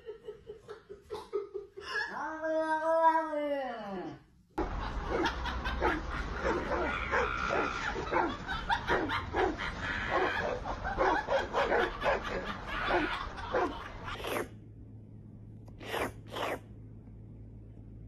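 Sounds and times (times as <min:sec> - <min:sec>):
dogs barking: 0:04.6 - 0:14.4.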